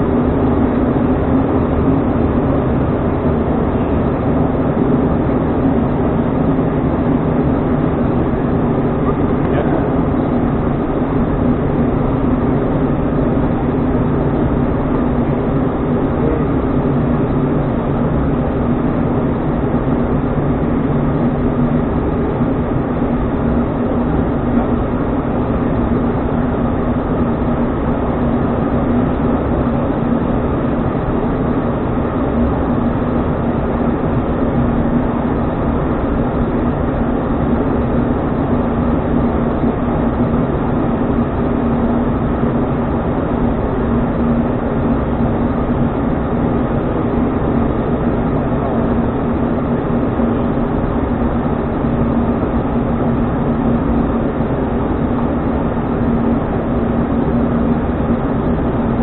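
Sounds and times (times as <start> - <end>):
turboprop engines droning: 0.0 - 59.0.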